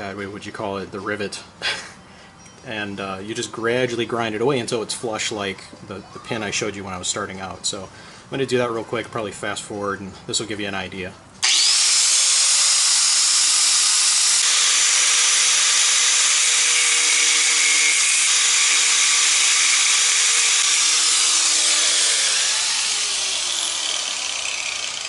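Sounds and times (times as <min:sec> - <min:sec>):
angle grinder grinding metal: 0:11.4 - 0:25.0.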